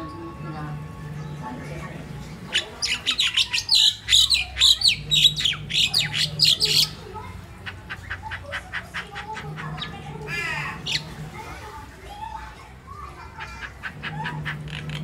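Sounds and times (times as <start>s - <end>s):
myna chattering calls: 2.4s - 11.4s, 13.2s - 15.0s.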